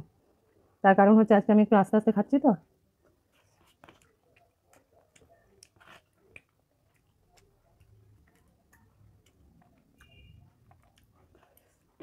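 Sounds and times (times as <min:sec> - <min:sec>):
quiet chewing: 0:03.0 - 0:12.0.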